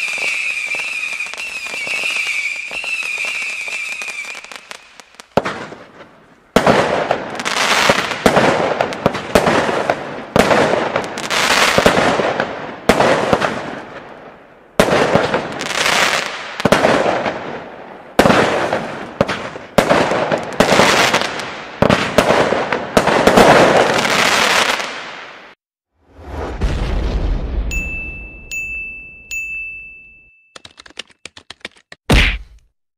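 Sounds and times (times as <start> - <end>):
firework bangs with crackle: 0.0 - 14.2, 14.8 - 27.8.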